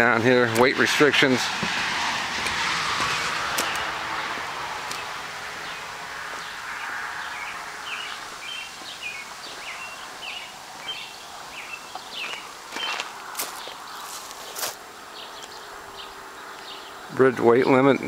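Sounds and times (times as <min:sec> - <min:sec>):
steady outdoor hiss: 0:00.0 - 0:18.0
small bird chirping: 0:07.2 - 0:17.1.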